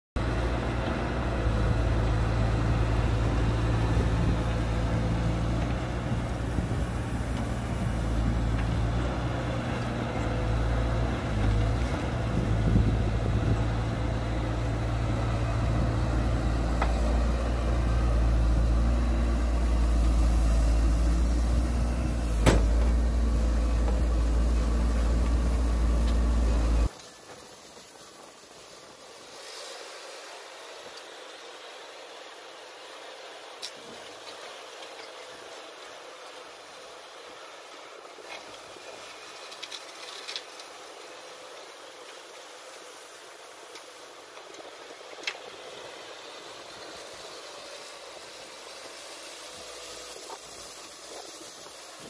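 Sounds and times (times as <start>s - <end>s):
excavator diesel engine running: 0.2s - 27.0s.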